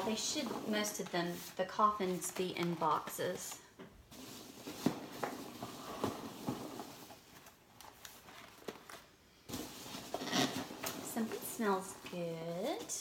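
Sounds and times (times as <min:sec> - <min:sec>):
cardboard rustling: 0:04.1 - 0:13.0.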